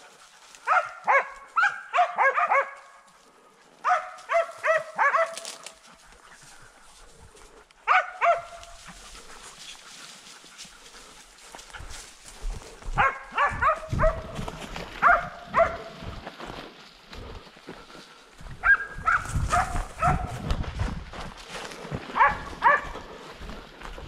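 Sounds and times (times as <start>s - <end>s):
dog barking: 0.6s - 3.0s, 3.8s - 5.6s, 7.8s - 9.0s, 12.9s - 14.4s, 15.0s - 16.1s, 18.6s - 20.4s, 22.1s - 23.1s.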